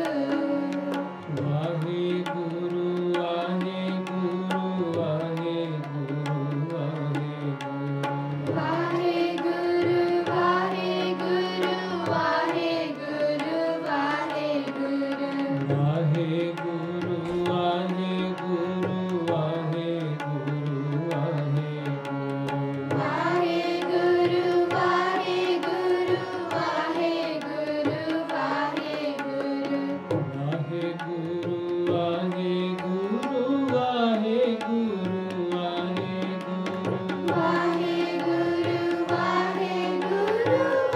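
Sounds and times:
harmonium chords: 0:00.0 - 0:40.9
tabla beat: 0:00.0 - 0:40.9
person singing a hymn: 0:08.5 - 0:16.5, 0:22.9 - 0:30.4, 0:35.0 - 0:40.9.

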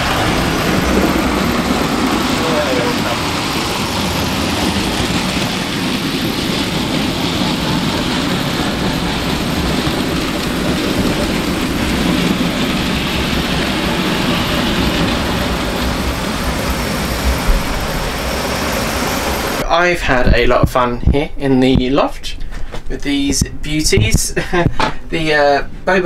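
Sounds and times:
model train motor and wheels: 0:00.0 - 0:19.6.

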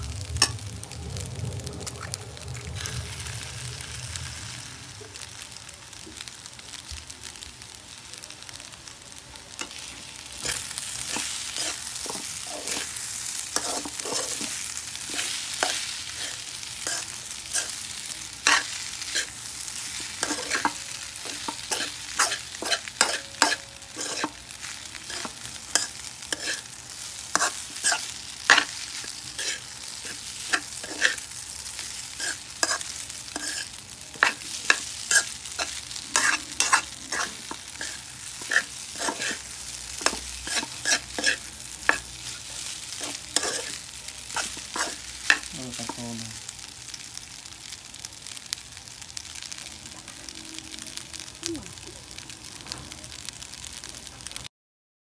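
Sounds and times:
rice sizzling in a wok: 0:00.0 - 0:54.5
metal spoon scraping a wok: 0:09.6 - 0:17.8, 0:18.4 - 0:46.0.

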